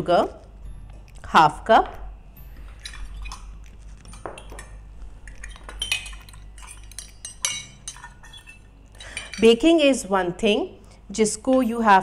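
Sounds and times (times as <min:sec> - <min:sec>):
metal measuring cups clinking: 0:04.1 - 0:09.9.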